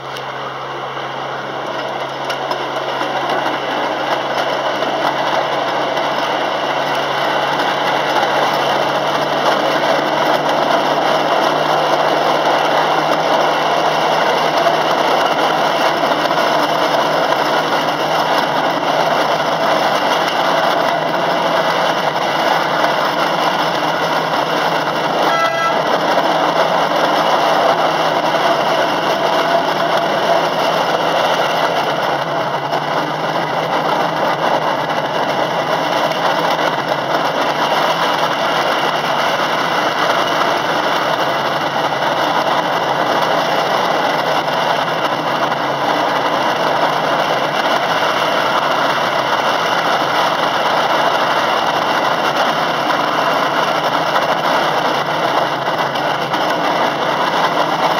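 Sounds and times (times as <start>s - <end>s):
miniature train running on track: 0.0s - 57.9s
train horn toot: 25.2s - 26.2s.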